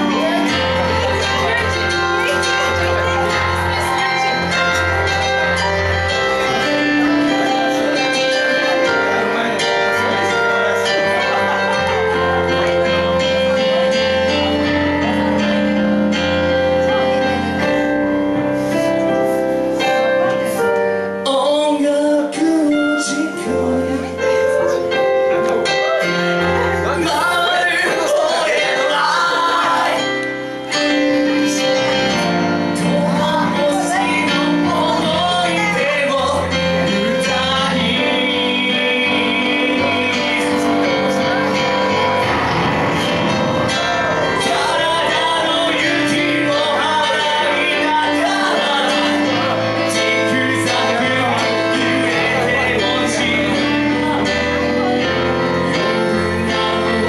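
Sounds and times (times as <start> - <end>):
keyboard accompaniment: 0.0 - 57.0
man singing into a microphone: 21.2 - 42.2, 43.7 - 57.0.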